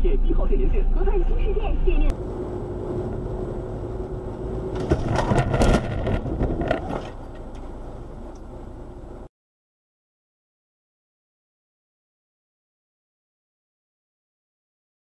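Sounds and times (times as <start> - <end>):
road and engine noise: 0.0 - 9.3
car crash impacts and crunching: 4.7 - 7.6.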